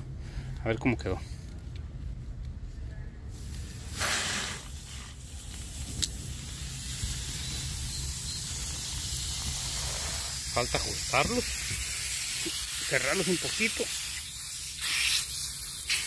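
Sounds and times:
sprinkler heads spraying: 0:03.4 - 0:16.0
water hissing through pipe: 0:03.8 - 0:16.0.

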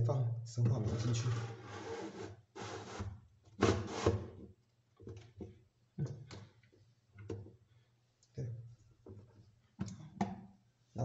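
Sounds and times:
foam scuffing rubs: 0:01.1 - 0:03.0.

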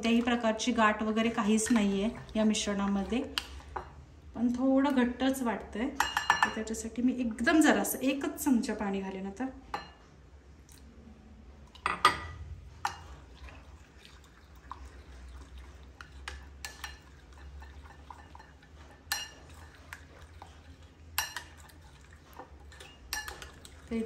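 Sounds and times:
soft wet batter mixing: 0:00.0 - 0:24.0
spoon clinking against bowl: 0:06.0 - 0:06.6, 0:19.1 - 0:19.4, 0:21.2 - 0:21.6, 0:23.1 - 0:23.6.

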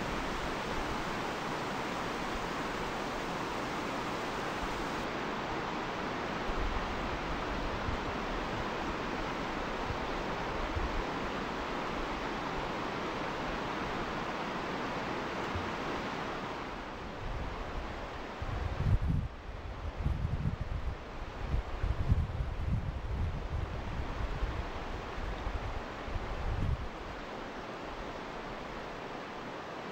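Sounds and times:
river rapids rushing over boulders: 0:00.0 - 0:18.4.

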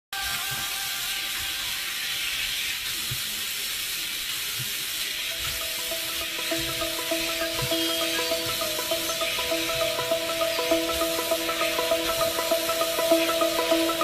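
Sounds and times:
steady hiss: 0:00.2 - 0:14.0
electronic music: 0:05.3 - 0:14.0.

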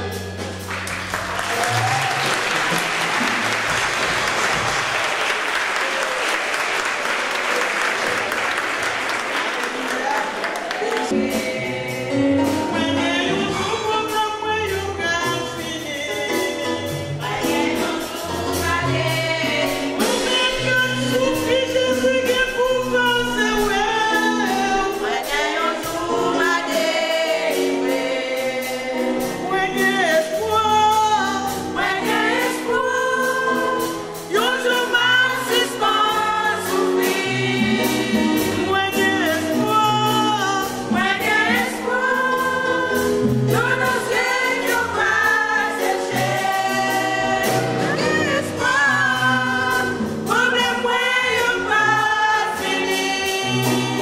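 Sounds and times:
instrumental accompaniment with bass: 0:00.0 - 0:05.2, 0:10.7 - 0:54.0
women's choir singing gospel: 0:00.0 - 0:54.0.

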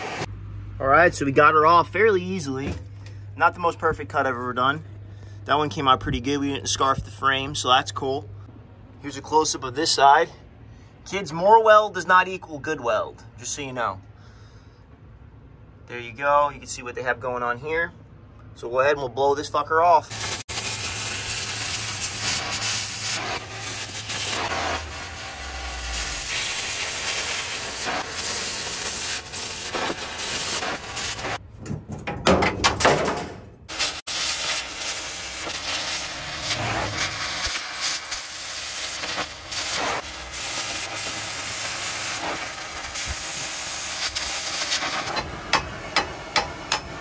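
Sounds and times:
cutting torch hissing: 0:00.0 - 0:00.3, 0:20.0 - 0:31.4, 0:33.7 - 0:46.7
hammer tapping metal: 0:45.1 - 0:47.0.

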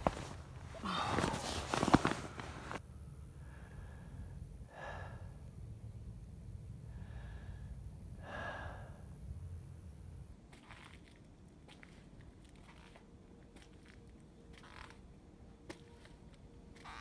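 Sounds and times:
person breathing heavily: 0:00.7 - 0:06.0, 0:06.8 - 0:09.3.

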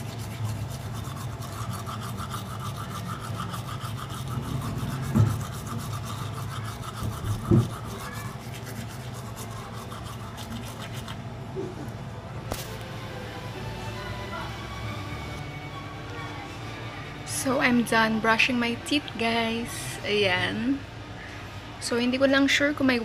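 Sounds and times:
toothbrush scrubbing teeth: 0:00.0 - 0:11.3.

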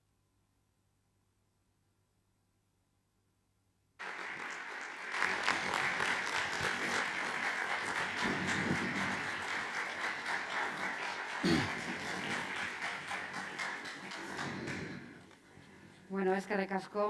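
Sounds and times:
audience applauding: 0:04.0 - 0:15.4.

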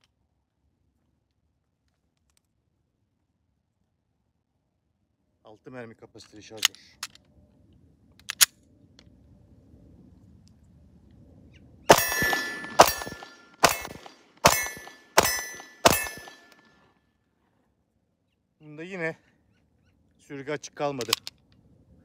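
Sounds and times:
pistol shots: 0:11.9 - 0:16.6
bullet clanging on steel target: 0:11.9 - 0:16.7.

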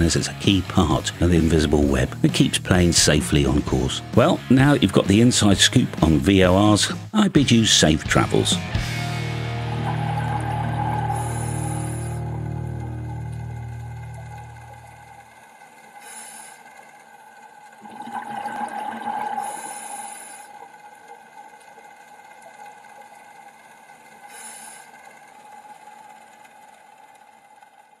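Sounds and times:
ambient drone of held tones: 0:08.1 - 0:16.2
swell of noise: 0:08.3 - 0:15.2.

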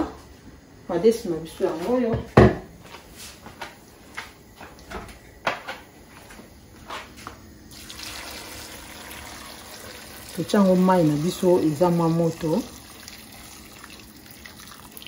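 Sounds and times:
water pouring onto beans in pot: 0:07.7 - 0:15.0.

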